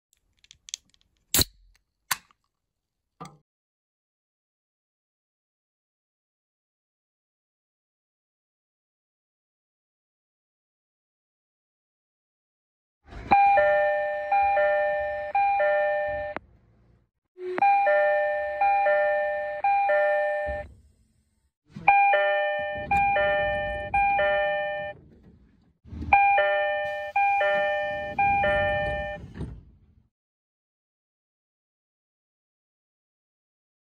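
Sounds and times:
train doors opening and closing: 0:13.1 - 0:16.5, 0:17.4 - 0:21.0, 0:21.7 - 0:30.1
train door chimes: 0:13.2 - 0:16.4, 0:17.5 - 0:20.7, 0:21.9 - 0:25.0, 0:26.2 - 0:29.5.

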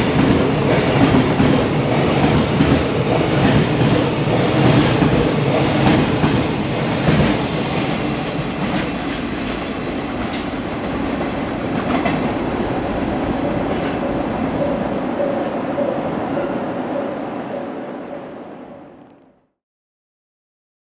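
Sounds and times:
freight train wheels clattering: 0:00.0 - 0:16.0
train rumble: 0:00.0 - 0:19.3.

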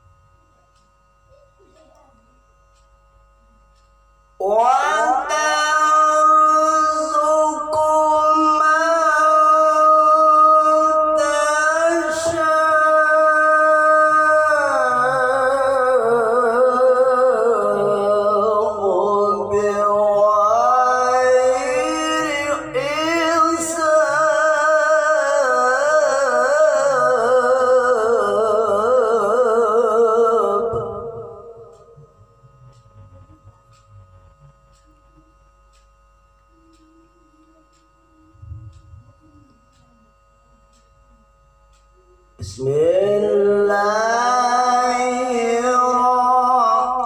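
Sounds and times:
man reciting melodically: 0:04.4 - 0:34.8, 0:42.3 - 0:47.0.

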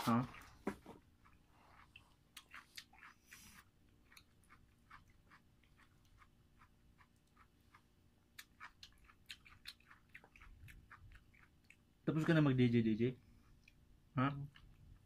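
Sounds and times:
wet chewing clicks: 0:00.3 - 0:11.9.

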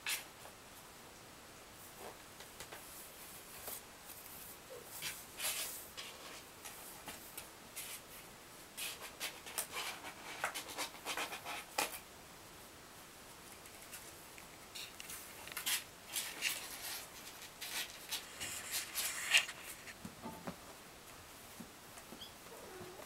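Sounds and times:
kitten claws scratching cardboard: 0:08.8 - 0:12.0, 0:14.8 - 0:20.0.

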